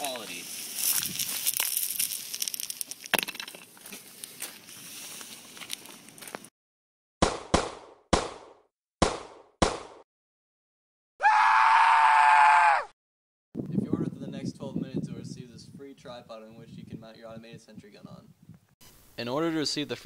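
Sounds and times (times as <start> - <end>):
plastic bag crinkling: 0.7 - 3.2.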